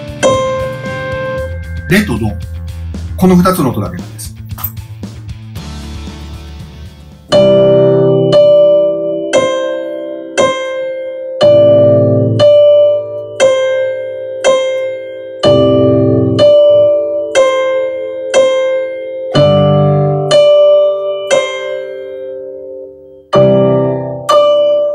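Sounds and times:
slow piano ballad chords: 0.0 - 3.2, 4.5 - 24.9
single-note piano motif: 0.0 - 3.8, 7.3 - 24.9.

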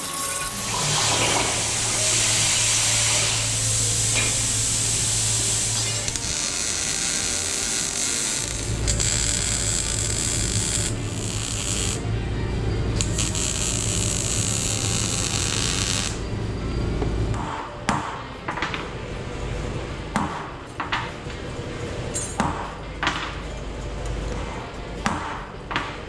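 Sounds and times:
welding arc crackling and hissing: 0.0 - 12.1, 13.0 - 16.2.

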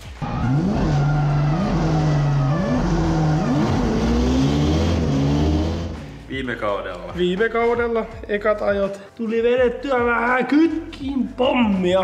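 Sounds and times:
car engine revving from inside cabin: 0.2 - 6.0.

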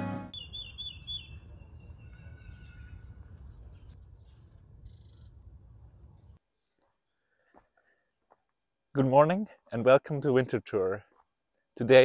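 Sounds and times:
small birds chirping: 0.3 - 8.1.

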